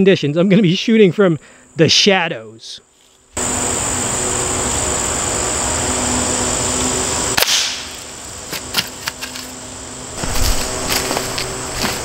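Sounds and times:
air rifle shot crack: 7.4s - 8.0s.

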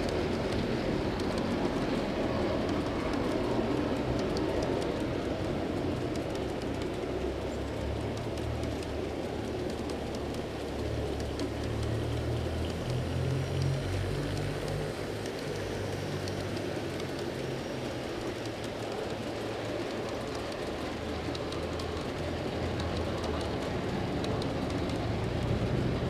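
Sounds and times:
clicking over rail joints: 0.0s - 26.0s
model train wheels rolling: 0.0s - 26.0s.

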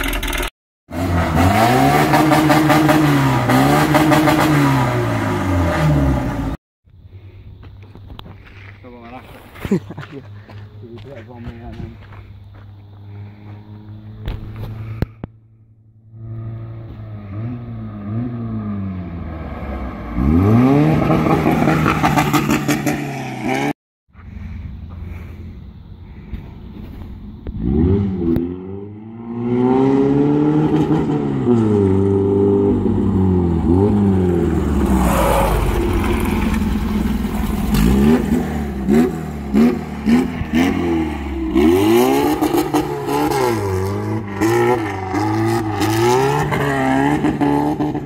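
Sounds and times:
car engine revving: 0.0s - 6.6s, 15.9s - 23.8s, 27.4s - 48.0s.

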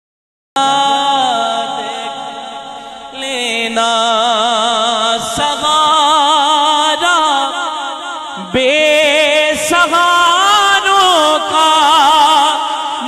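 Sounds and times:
man singing unaccompanied: 0.6s - 13.0s.

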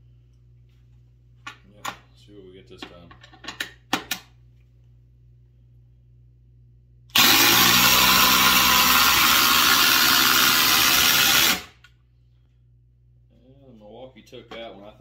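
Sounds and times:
impact drivers hammering screws: 7.1s - 11.7s.

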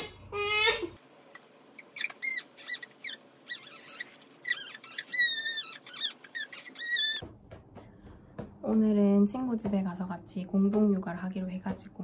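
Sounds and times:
skin squeaking on vinyl mat: 1.7s - 7.2s.

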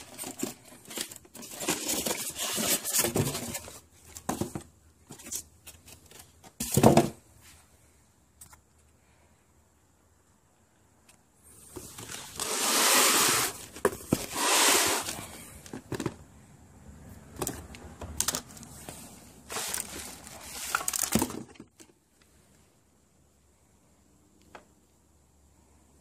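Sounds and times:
cardboard box rustling: 0.0s - 7.2s, 11.6s - 16.2s, 18.3s - 21.6s
plastic wrap crinkling: 19.4s - 21.5s.

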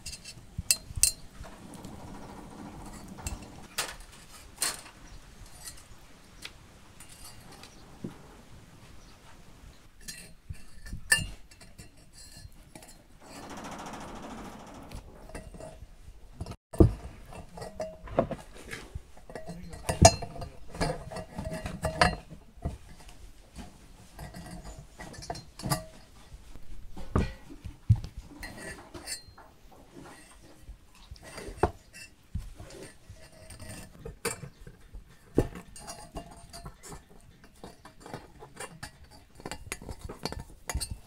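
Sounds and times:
metallic clinks of wire twisting: 0.0s - 6.0s.

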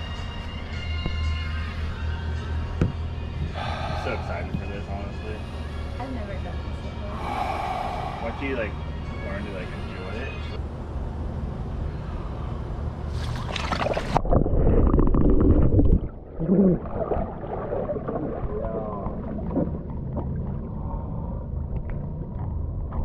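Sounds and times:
water sloshing and splashing: 13.1s - 23.0s.

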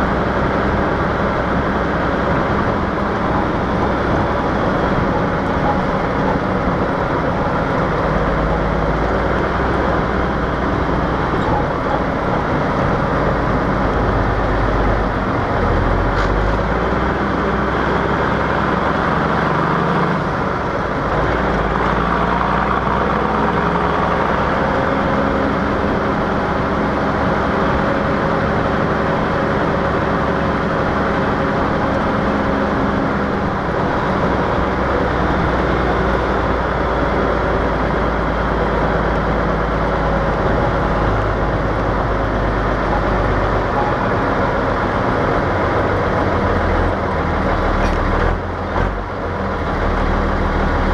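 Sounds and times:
diesel truck engine running: 0.0s - 50.9s
road noise: 0.0s - 50.9s.

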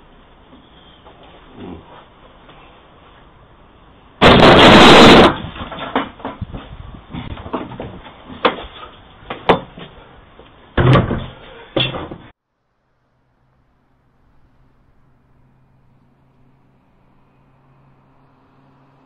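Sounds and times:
wooden gate knocking and banging: 4.2s - 10.0s, 10.8s - 12.3s.

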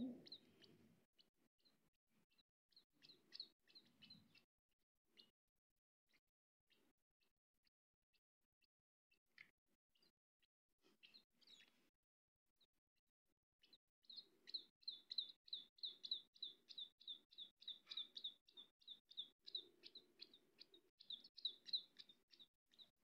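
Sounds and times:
baby birds chirping: 0.0s - 4.5s, 9.4s - 10.1s, 10.9s - 11.8s, 13.6s - 23.0s.

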